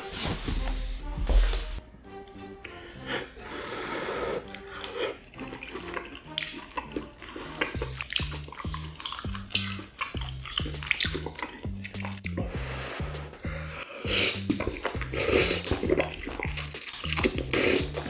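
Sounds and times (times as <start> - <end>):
wet slurping: 4.2 - 13.0, 13.9 - 18.0
wet chewing and mouth smacking: 4.4 - 12.6, 14.0 - 18.0
background music with bass: 5.4 - 18.0.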